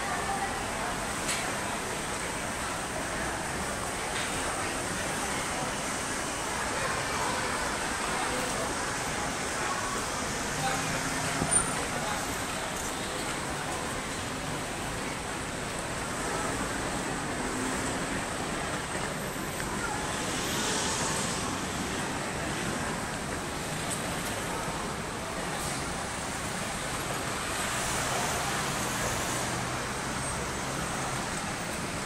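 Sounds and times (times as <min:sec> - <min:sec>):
road traffic hum: 0:00.0 - 0:32.0
vehicles passing: 0:00.4 - 0:32.0.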